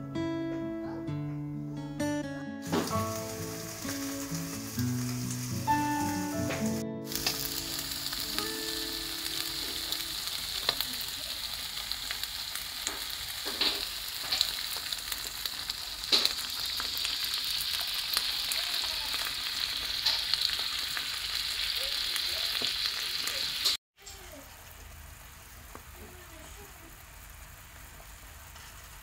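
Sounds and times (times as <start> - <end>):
fish sizzling in hot oil: 2.6 - 29.0
oil pops and crackles: 6.5 - 8.3, 12.0 - 18.3.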